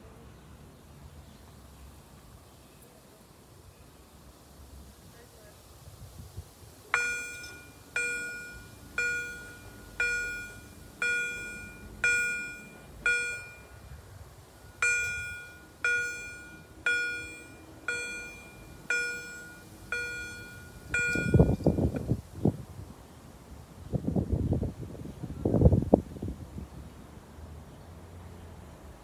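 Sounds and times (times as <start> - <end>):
level crossing bell ringing: 7.0 - 22.0.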